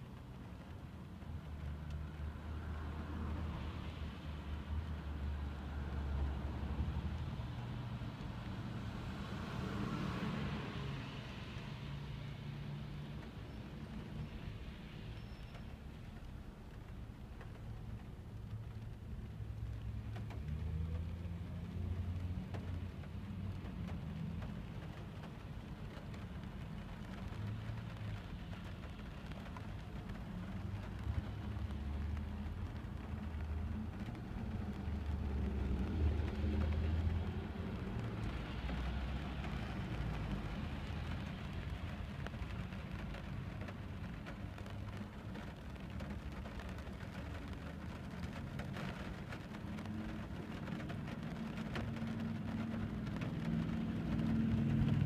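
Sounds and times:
car engine and road rumble: 0.0s - 55.0s
rain pattering on car roof: 0.0s - 55.0s.

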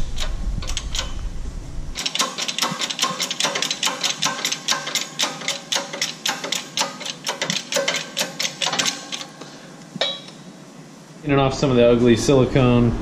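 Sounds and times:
hydraulic press hand pump clicking: 0.0s - 1.2s, 2.0s - 9.3s.

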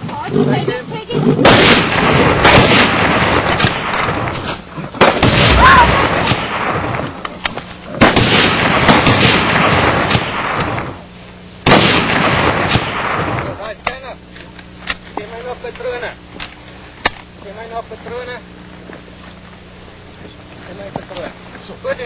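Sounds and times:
loud continuous rushing noise: 0.0s - 14.2s
rifle shots: 1.4s - 7.2s, 8.0s - 11.0s, 11.6s - 13.6s.

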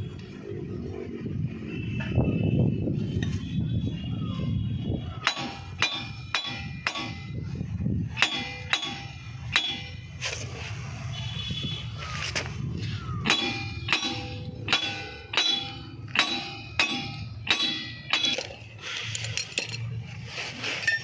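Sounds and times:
hammer striking steel brake drum: 5.2s - 7.5s, 8.1s - 10.1s, 13.2s - 18.7s.

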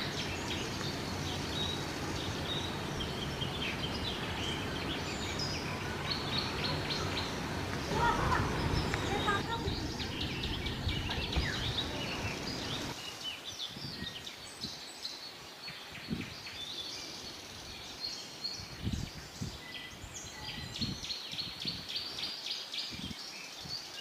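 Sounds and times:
low rumble: 0.0s - 12.9s
small birds chirping: 0.0s - 24.0s.

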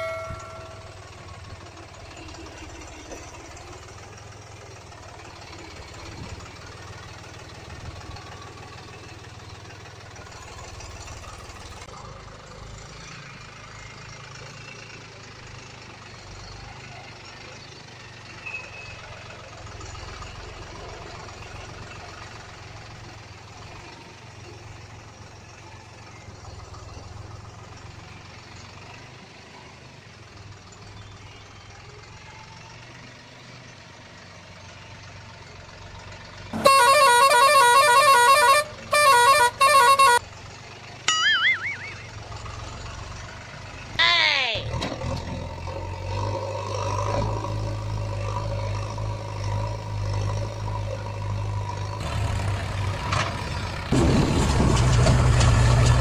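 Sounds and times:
wavering vehicle horn honk: 0.0s - 1.0s, 36.6s - 40.2s.

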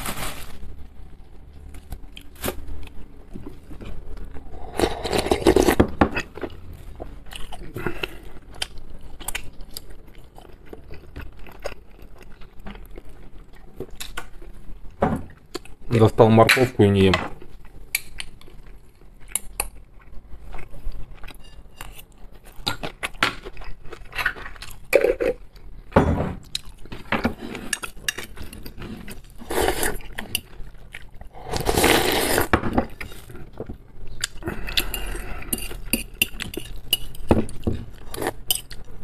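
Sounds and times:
chewing and slurping noodles: 26.6s - 39.0s.

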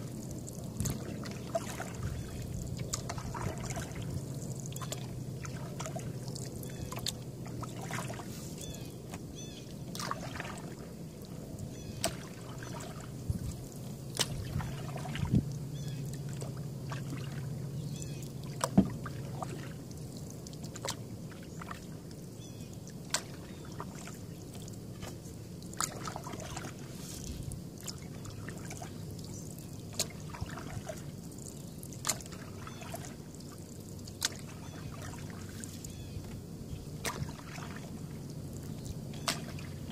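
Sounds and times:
water dripping off paddle: 0.0s - 39.9s
paddle knocking on canoe: 18.6s - 19.5s.

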